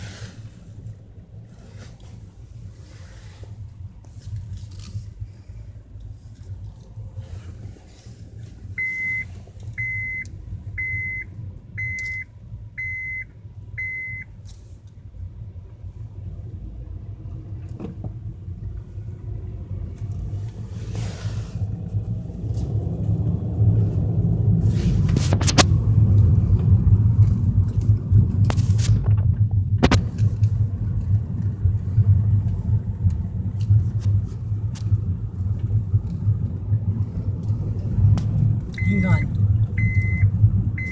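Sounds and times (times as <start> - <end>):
vehicle rumbling on road: 0.0 - 40.9
dashboard warning chime: 8.8 - 14.3, 38.8 - 40.9.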